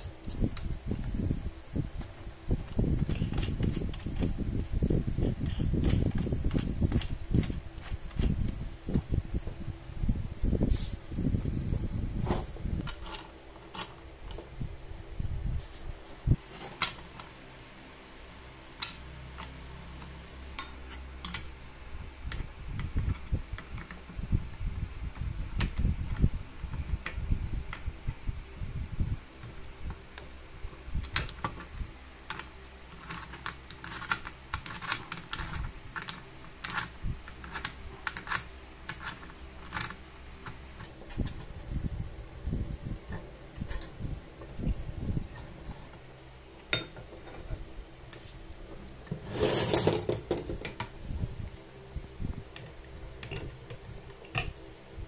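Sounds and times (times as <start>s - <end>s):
low handling rumble: 40.3s - 55.0s.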